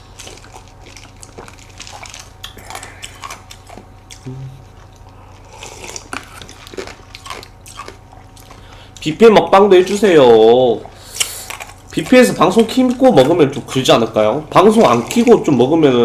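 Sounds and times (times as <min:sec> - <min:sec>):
quiet chewing: 0:00.0 - 0:09.1.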